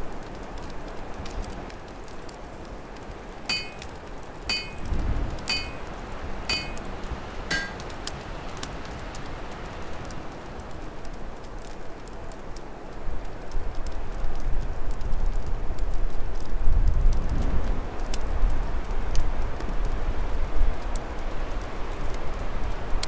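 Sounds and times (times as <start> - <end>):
fire crackling: 0.0 - 23.0
metallic clinks: 3.5 - 3.9, 4.5 - 5.8, 6.5 - 6.8, 7.5 - 7.8.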